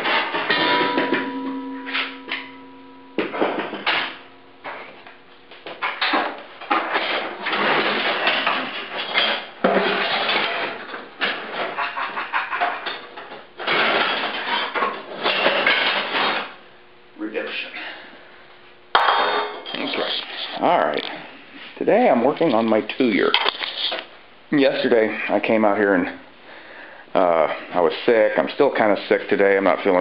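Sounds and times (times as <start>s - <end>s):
scrap metal clanking: 0.0s - 4.8s
struck metal ringing: 0.0s - 4.8s.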